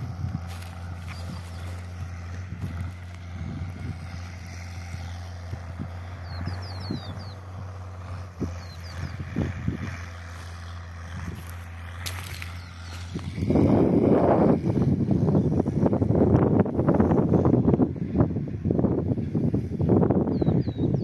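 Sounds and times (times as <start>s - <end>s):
distant tractor engine droning: 0.0s - 21.0s
high bird chirps: 6.1s - 7.5s, 8.4s - 9.4s.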